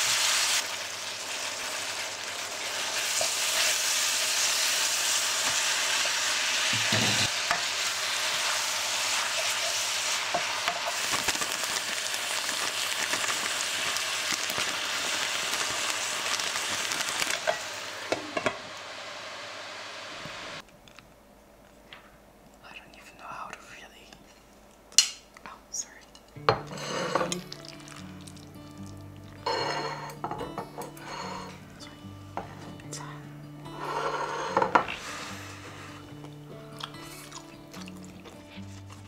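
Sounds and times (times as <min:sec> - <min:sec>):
food sizzling in frying pan: 0:00.0 - 0:20.6, 0:26.4 - 0:31.8, 0:33.6 - 0:38.6
wooden spatula scraping pan: 0:26.6 - 0:27.4, 0:29.5 - 0:30.2, 0:30.9 - 0:31.6, 0:33.8 - 0:36.0.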